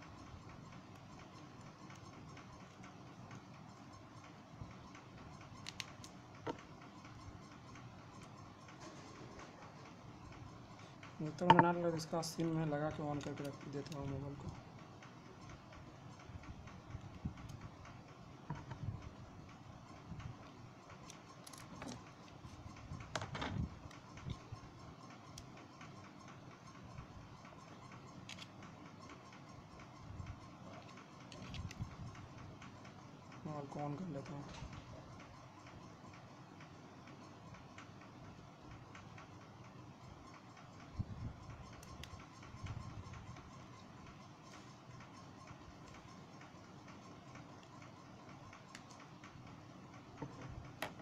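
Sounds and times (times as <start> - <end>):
screwdriver ticks and scrapes: 13.1 - 32.9.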